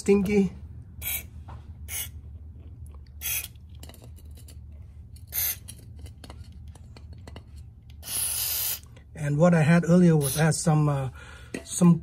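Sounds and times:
aerosol can spraying hiss: 8.0s - 8.8s, 10.2s - 10.5s.

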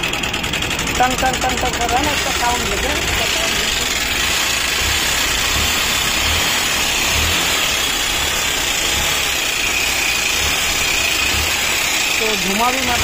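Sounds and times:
metallic engine knock: 0.0s - 7.2s
motorcycle engine idling: 0.0s - 13.0s.

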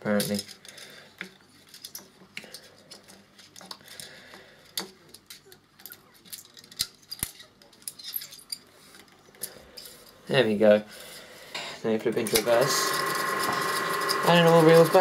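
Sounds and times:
plastic film reel clicking: 12.2s - 15.0s.

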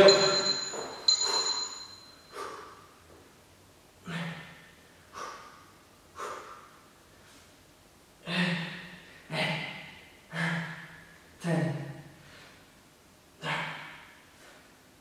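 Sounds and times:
man grunting with effort: 4.0s - 4.6s, 8.2s - 12.0s, 13.4s - 14.2s.

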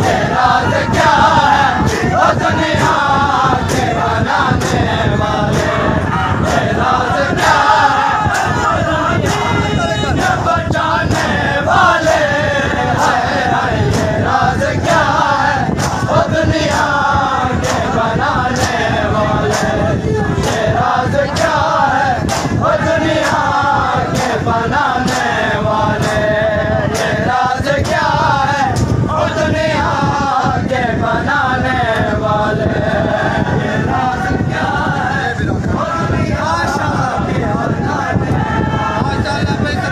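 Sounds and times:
men chanting in unison: 0.0s - 39.9s
hand slaps on chests: 7.4s - 8.6s, 15.8s - 16.1s, 17.6s - 17.9s, 19.5s - 19.8s, 22.2s - 22.6s, 25.0s - 25.4s, 28.7s - 29.0s.

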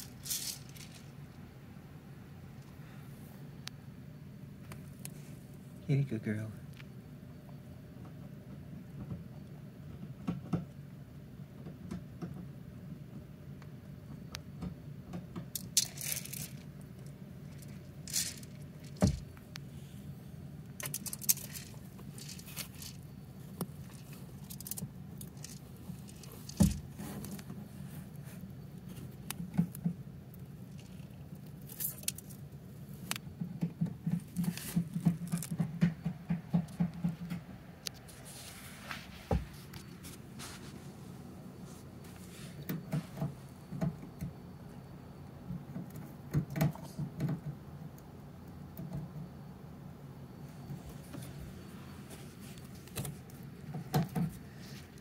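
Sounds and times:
rabbit scuffing and scraping: 0.0s - 1.5s, 15.6s - 20.2s, 20.8s - 30.0s, 30.6s - 43.8s, 50.6s - 55.0s.

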